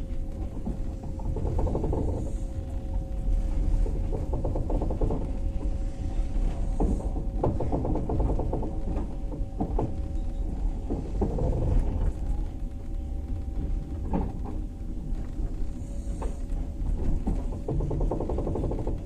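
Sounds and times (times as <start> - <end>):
steady hum: 0.0 - 19.0
train carriage low rumble: 0.0 - 19.0.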